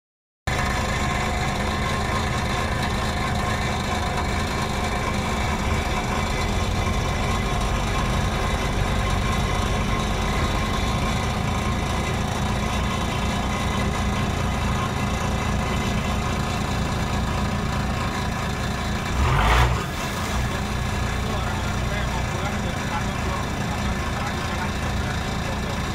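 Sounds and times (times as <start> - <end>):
boat engine running: 0.5 - 25.9
water rushing along hull: 19.1 - 23.2.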